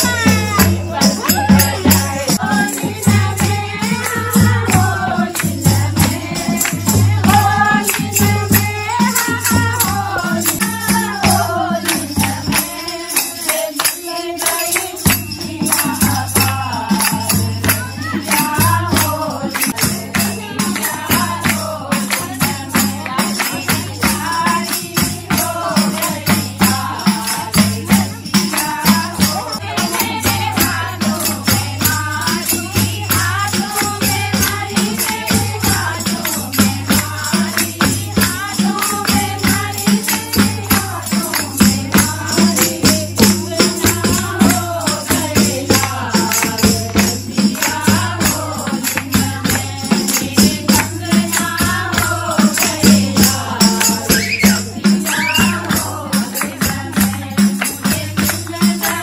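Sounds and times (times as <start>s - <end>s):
dholak drum beat: 0.0s - 59.0s
women singing folk song: 0.0s - 59.0s
hand clapping: 33.2s - 59.0s.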